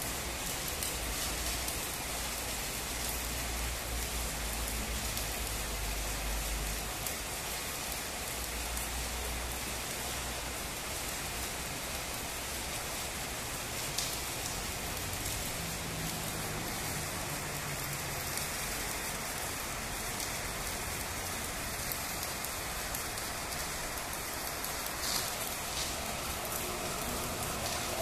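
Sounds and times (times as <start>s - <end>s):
welding arc crackling: 0.0s - 28.0s.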